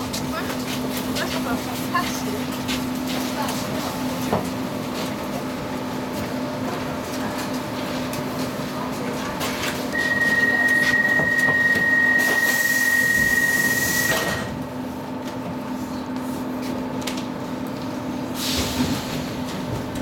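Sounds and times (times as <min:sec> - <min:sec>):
train car low hum: 0:00.0 - 0:20.0
high door signal tone: 0:09.9 - 0:14.6.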